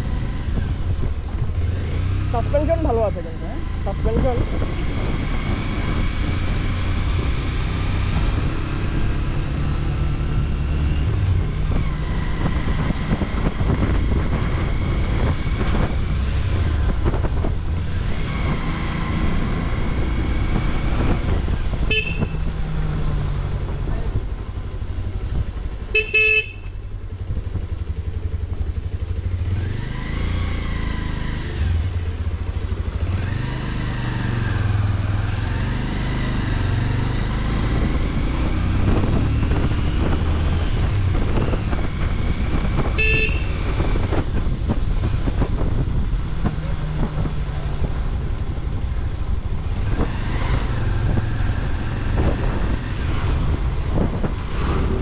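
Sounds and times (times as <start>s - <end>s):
motorcycle engine running: 0.0s - 55.0s
motorcycle horn beeping: 21.8s - 22.5s, 25.9s - 26.8s, 43.0s - 43.7s.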